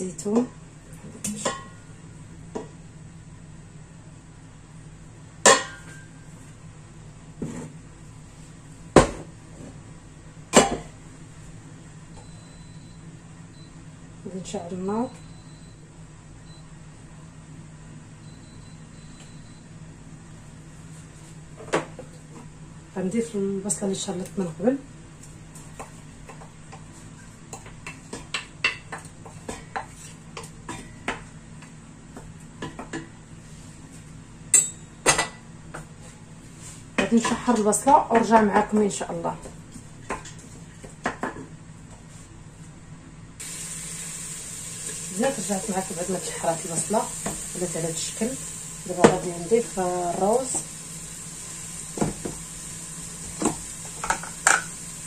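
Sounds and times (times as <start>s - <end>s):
wooden spoon scraping and tapping: 25.6s - 31.3s
pot and bottle knocking on counter: 52.0s - 52.4s.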